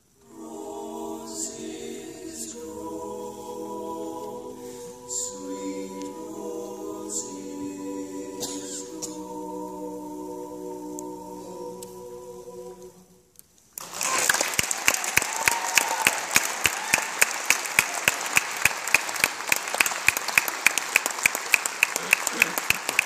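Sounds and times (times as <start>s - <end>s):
a cappella vocal chord: 0.1s - 13.3s
audience applause: 13.8s - 23.0s
close loud hand clapping: 13.8s - 23.0s.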